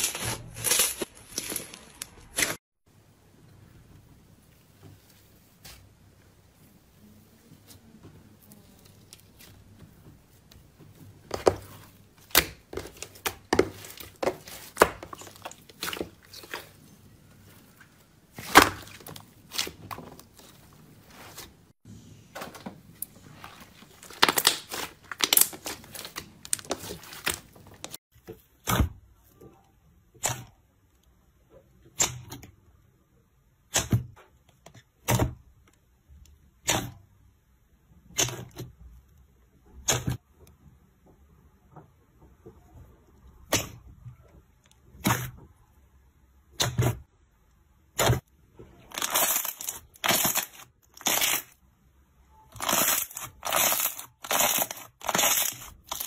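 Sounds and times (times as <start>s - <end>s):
slime squelching and popping: 11.2s - 21.4s, 23.0s - 28.0s, 48.8s - 51.6s, 52.6s - 56.0s.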